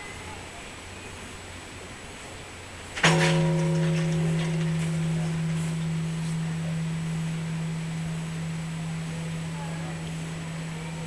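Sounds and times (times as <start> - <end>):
low humming bell ring: 3.0 - 11.0
wooden striker hitting temple bell: 3.0 - 11.0.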